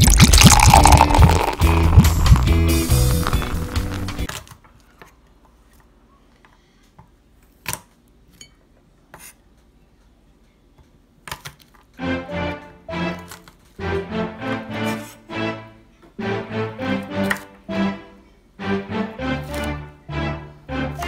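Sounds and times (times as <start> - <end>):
intro music: 0.0 - 4.3
background music: 0.3 - 4.3, 12.0 - 21.0.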